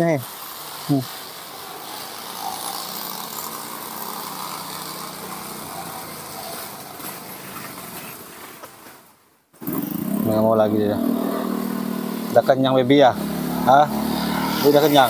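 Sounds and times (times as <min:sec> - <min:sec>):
outdoor background hiss: 0:00.0 - 0:15.0
motor humming: 0:00.2 - 0:07.9.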